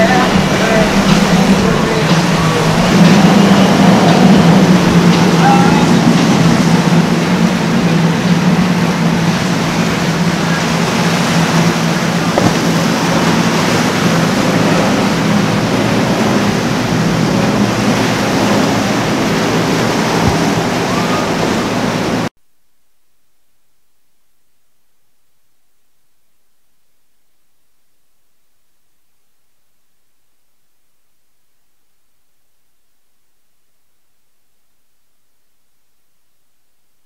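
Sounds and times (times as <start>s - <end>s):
outboard motors droning: 0.0s - 22.3s
surf rushing: 0.0s - 22.3s.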